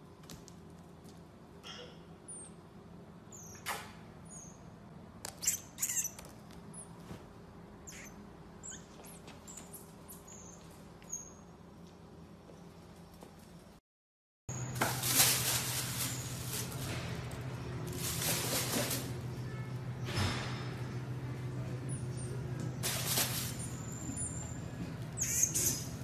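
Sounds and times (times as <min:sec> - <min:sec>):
marmoset high-pitched chirps: 0:05.4 - 0:06.9, 0:07.8 - 0:11.4, 0:23.6 - 0:26.0.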